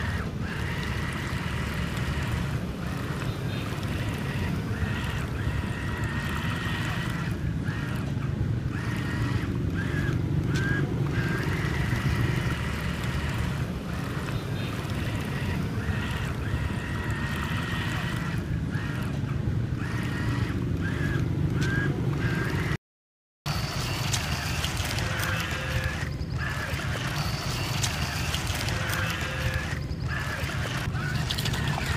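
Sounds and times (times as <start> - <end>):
small electric motor whining: 0.0 - 22.8, 23.5 - 31.9
paddle wheels churning water: 23.5 - 31.9.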